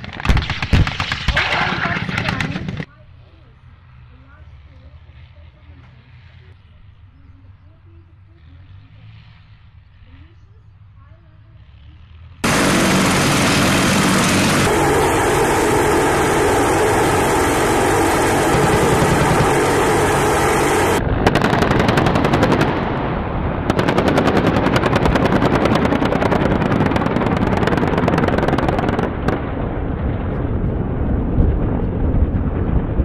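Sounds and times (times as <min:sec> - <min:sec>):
loud din with held tones: 0:12.4 - 0:21.0
rapid automatic gunfire: 0:16.7 - 0:22.9, 0:23.7 - 0:29.0.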